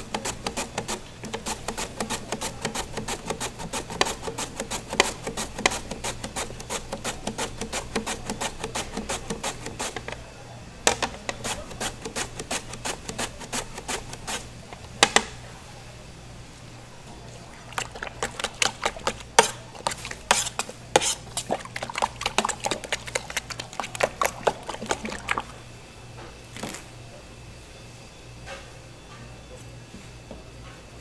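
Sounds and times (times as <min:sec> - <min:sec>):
carrot rasped on mandoline: 0:00.0 - 0:10.2, 0:11.1 - 0:14.5, 0:17.7 - 0:25.6
utensil stirring in metal tray: 0:00.0 - 0:10.2, 0:10.9 - 0:14.5, 0:17.5 - 0:25.6.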